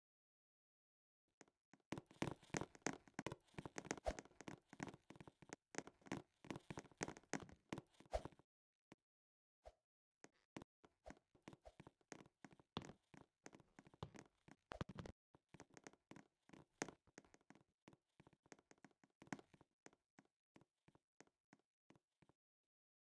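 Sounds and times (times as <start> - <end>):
faint taps and clicks: 10.2 - 22.4.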